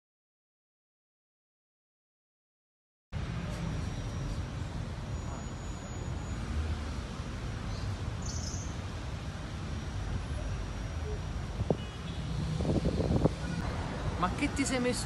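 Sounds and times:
faint high chirp: 0:03.5 - 0:06.4, 0:07.7 - 0:08.7.

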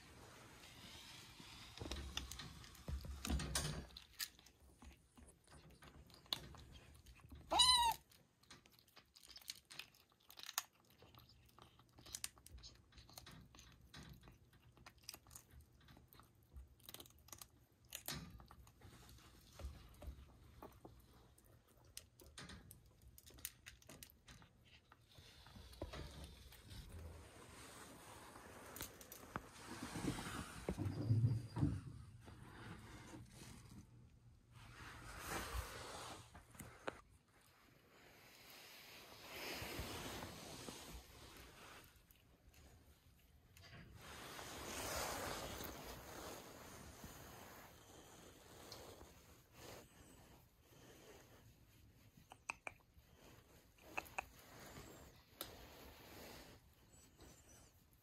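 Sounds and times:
kittens chewing food: 0:01.8 - 0:27.6
cat meowing: 0:07.5 - 0:08.0.

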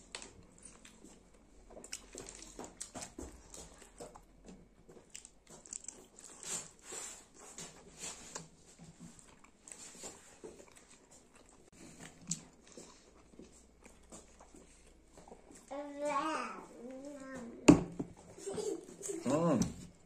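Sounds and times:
person chewing food: 0:00.0 - 0:15.7.

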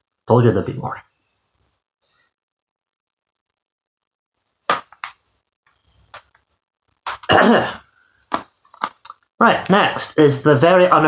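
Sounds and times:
plastic cases clattering: 0:08.3 - 0:09.2
plastic cases clicking: 0:08.3 - 0:09.2.

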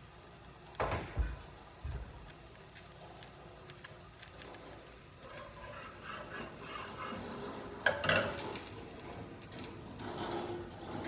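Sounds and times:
cookware clattering: 0:05.4 - 0:08.7.

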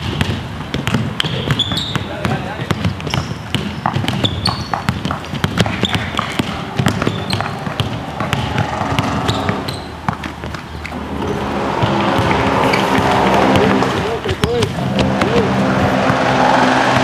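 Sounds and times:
basketball bouncing on court: 0:00.0 - 0:17.0
steady hum: 0:10.8 - 0:17.0.

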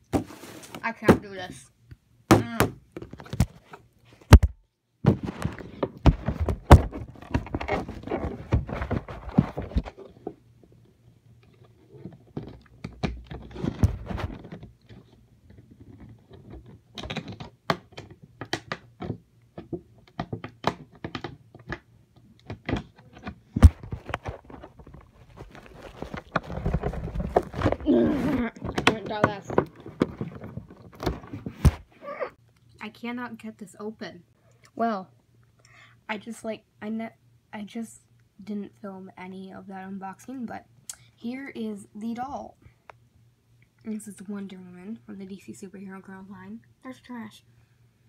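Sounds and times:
packaging thunks and clicks: 0:12.2 - 0:31.9
packaging rustling: 0:22.7 - 0:31.9.

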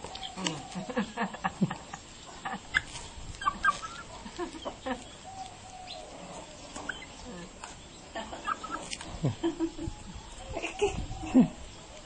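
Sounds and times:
chicken clucking: 0:00.0 - 0:12.0.

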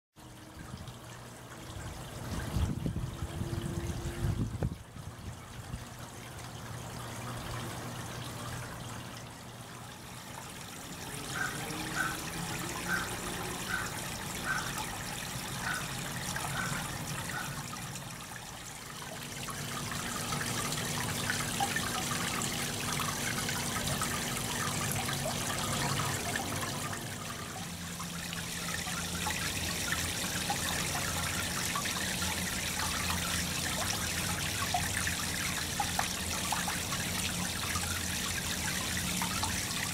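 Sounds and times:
fountain water splashing into basin: 0:00.2 - 0:39.9.

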